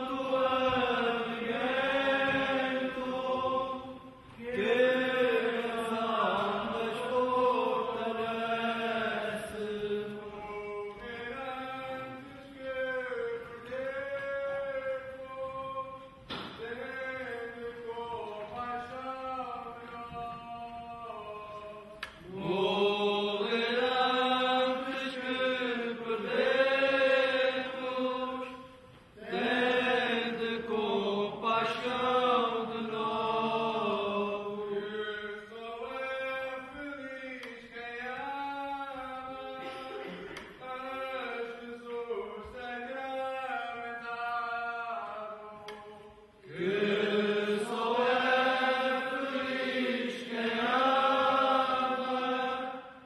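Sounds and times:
men chanting a prayer in unison: 0:29.2 - 0:52.8.

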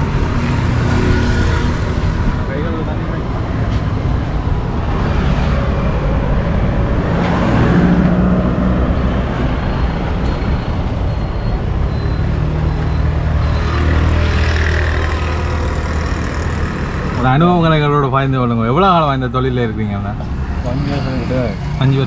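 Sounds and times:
vehicle engines passing: 0:00.0 - 0:22.0.

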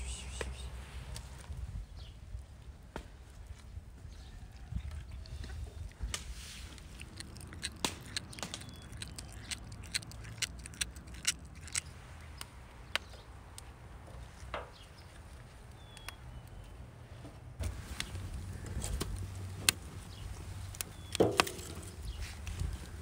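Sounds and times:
cat chewing and tearing meat: 0:04.2 - 0:13.1.

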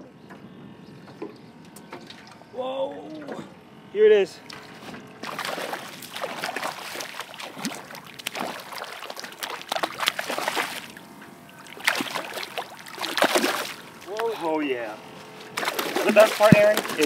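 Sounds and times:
fish thrashing and splashing water: 0:05.2 - 0:14.4, 0:15.6 - 0:17.0.

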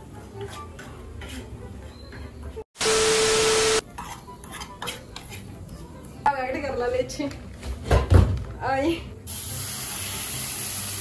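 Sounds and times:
spoon stirring sauce in pan: 0:03.9 - 0:05.6.

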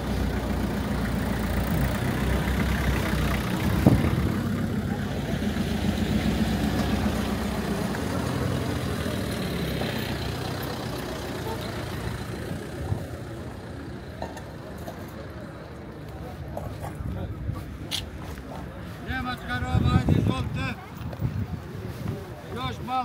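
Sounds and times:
engine idling: 0:00.0 - 0:15.8.

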